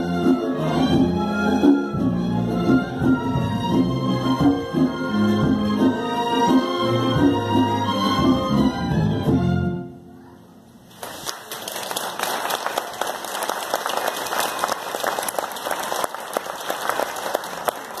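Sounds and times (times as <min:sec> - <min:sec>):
keyboard music: 0:00.0 - 0:10.0
audience applause: 0:10.9 - 0:18.0.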